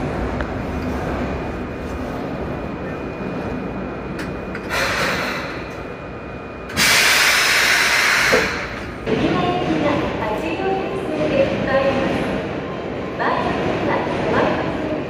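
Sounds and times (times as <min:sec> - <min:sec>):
compressed air hissing: 0:06.8 - 0:08.6.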